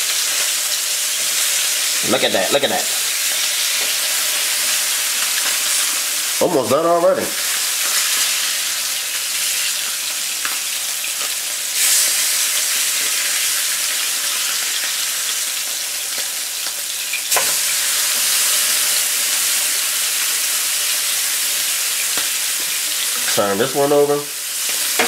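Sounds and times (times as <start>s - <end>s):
fish sizzling in a frying pan: 0.0s - 25.0s.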